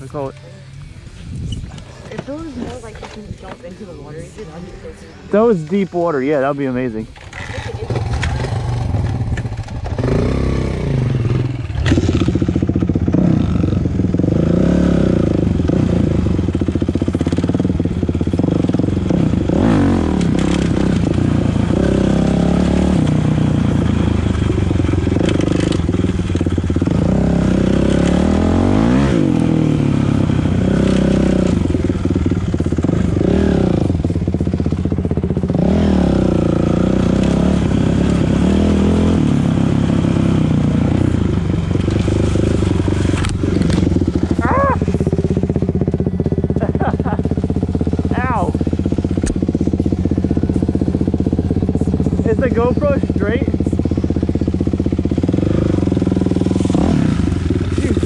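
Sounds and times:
dirt bike engine revving: 5.3 - 58.0.

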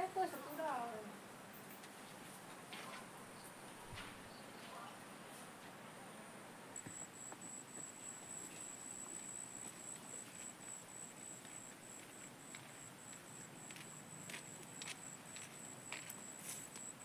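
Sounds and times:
faint outdoor background: 0.0 - 17.0
insect chirping trill: 6.8 - 17.0.

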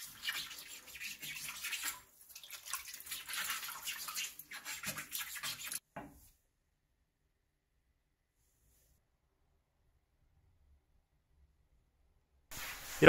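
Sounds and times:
scrub pad scrubbing faucet: 0.0 - 5.8.

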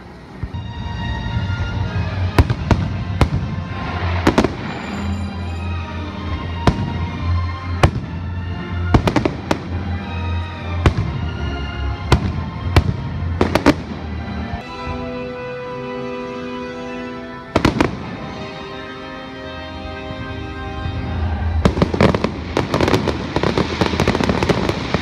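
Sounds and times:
music playing: 0.0 - 25.0
firework bangs: 1.7 - 5.7, 6.6 - 7.2, 7.8 - 10.0, 10.8 - 11.4, 12.0 - 15.0, 17.6 - 18.5, 20.9 - 25.0.

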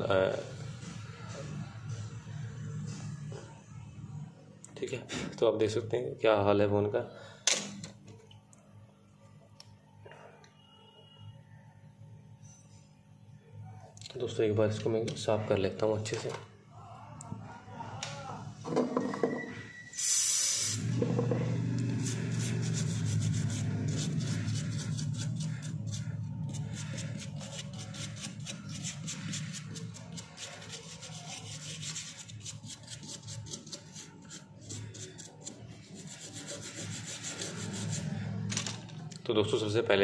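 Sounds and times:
short hiss: 20.0 - 20.8
brush scrubbing circuit board: 21.9 - 38.3.

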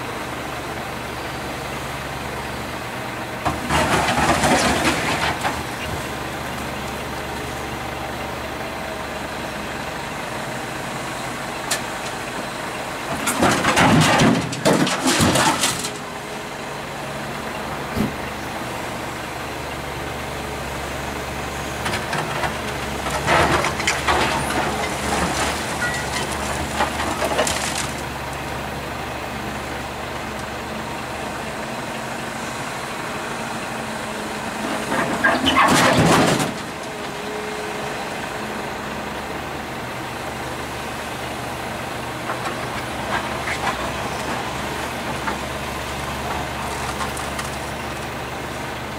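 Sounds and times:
excavator diesel engine running: 0.0 - 48.9
bucket scraping and crashing rubble: 3.5 - 5.6, 13.3 - 16.0, 34.8 - 36.7.

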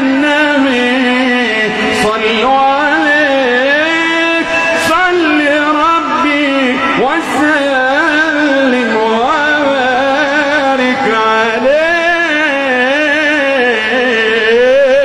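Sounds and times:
man singing melismatic phrases: 0.0 - 15.0.

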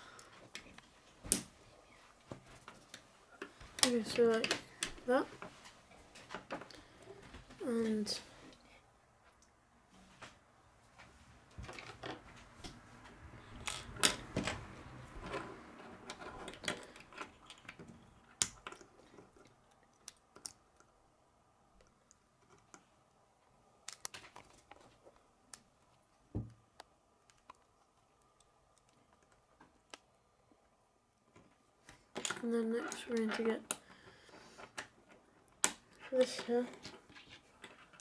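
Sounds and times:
plastic pieces clicking together: 16.1 - 21.0, 23.8 - 24.8.

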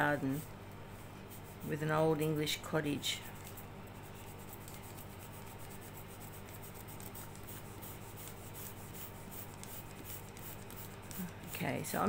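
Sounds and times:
scissors scratching balsa wood: 3.3 - 12.0.

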